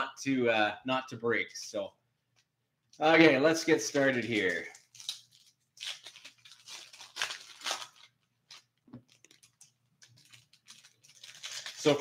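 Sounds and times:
foil pack tearing and crinkling: 4.3 - 12.0.

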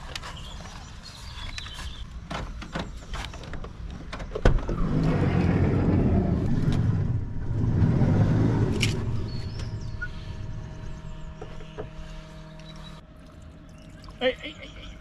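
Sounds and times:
loud low rushing noise: 5.6 - 12.4.

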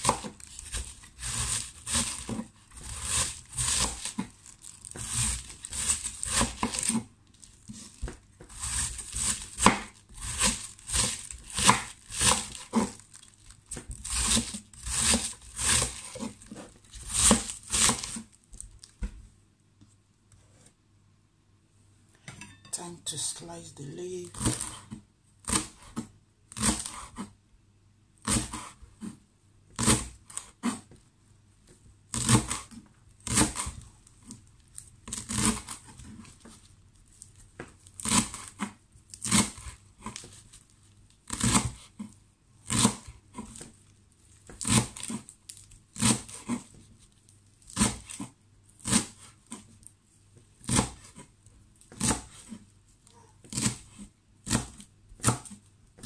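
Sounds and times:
knife chopping on wooden board: 0.0 - 4.3, 4.9 - 7.1, 7.7 - 13.0, 13.7 - 18.2, 24.3 - 27.3, 32.1 - 33.8, 35.1 - 36.6, 41.3 - 42.1, 42.7 - 43.8, 44.6 - 45.2, 46.0 - 46.7, 47.7 - 49.7, 50.6 - 52.6, 53.4 - 56.0.

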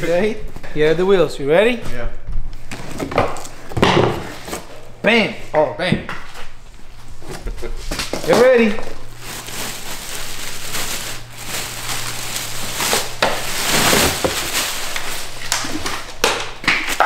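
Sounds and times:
plastic wrap crinkling: 7.9 - 17.0.

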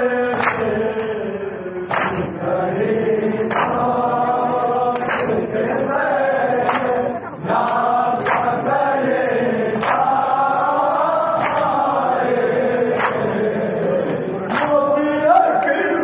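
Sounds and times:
men chanting in unison: 0.0 - 16.0
group chest-beating slaps: 0.3 - 1.1, 1.8 - 2.5, 3.4 - 4.0, 4.9 - 8.7, 9.3 - 12.0, 12.9 - 13.4, 14.4 - 15.9.

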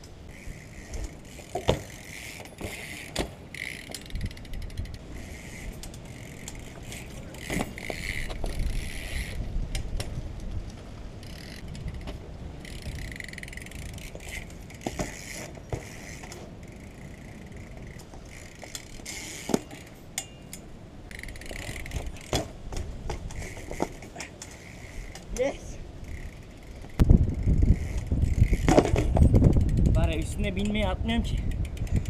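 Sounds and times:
bike freewheel ticking: 0.0 - 10.0, 11.2 - 22.5, 23.1 - 32.0
sharp knocks from bike: 0.9 - 4.0, 6.9 - 8.6, 14.2 - 16.4, 21.9 - 24.3, 28.0 - 29.4.

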